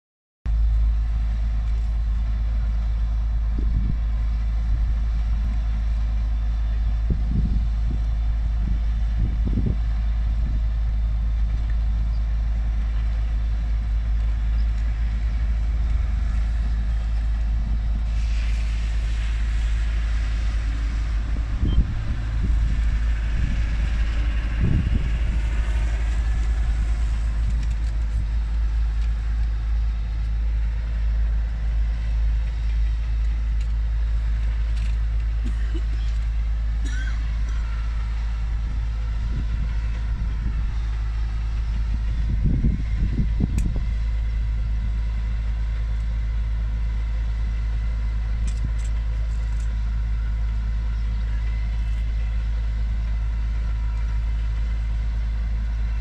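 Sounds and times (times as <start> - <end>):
fire engine rumbling: 0.5 - 56.0.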